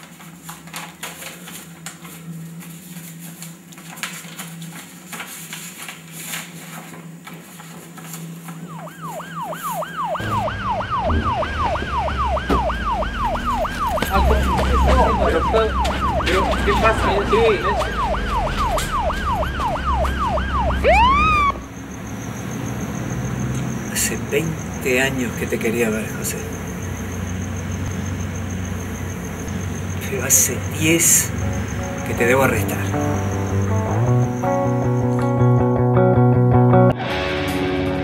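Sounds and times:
police siren yelping: 8.7 - 24.8
low hum: 9.9 - 16.1
car rumbling: 10.2 - 35.4.

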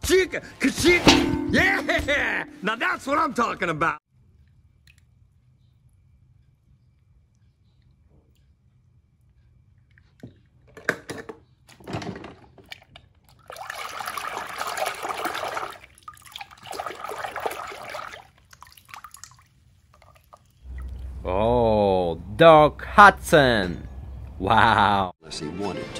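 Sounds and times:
water sloshing in a tub: 12.5 - 21.3.

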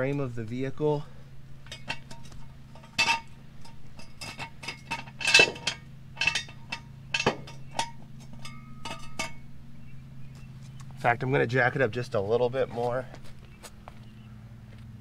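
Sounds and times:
metallic clinks and rattles: 1.6 - 9.5.

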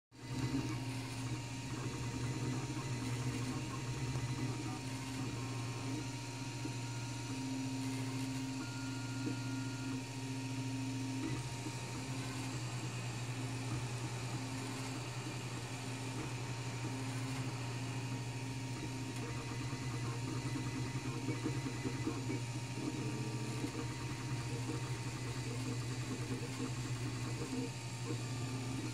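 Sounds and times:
cooling fans humming: 0.2 - 28.9
stepper motors whining: 0.2 - 28.9.

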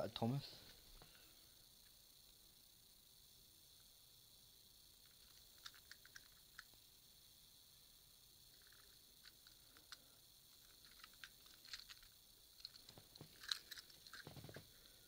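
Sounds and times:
toy train handling clicks: 5.0 - 6.8, 10.6 - 14.5.

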